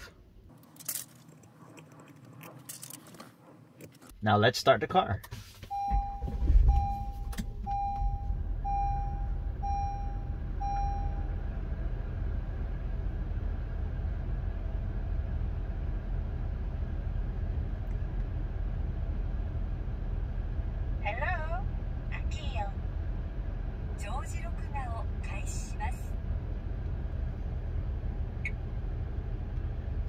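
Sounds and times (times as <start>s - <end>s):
car engine starting and idling: 0.0s - 30.0s
car warning chime beeping: 5.7s - 11.4s.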